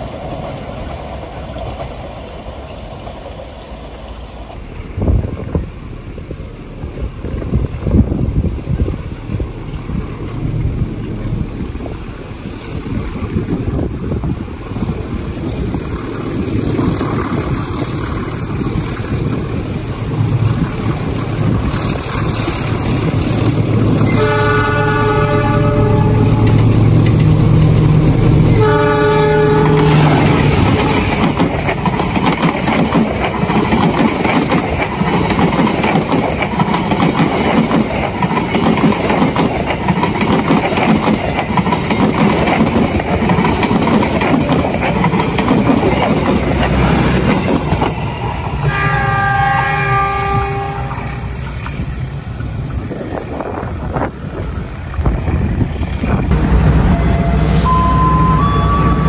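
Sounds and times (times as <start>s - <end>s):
diesel locomotive engine humming: 0.0s - 59.0s
train wheels clattering on rails: 6.8s - 24.6s, 25.4s - 57.4s
train horn blasts: 24.1s - 26.7s, 28.4s - 31.1s, 48.6s - 51.2s, 56.5s - 59.0s.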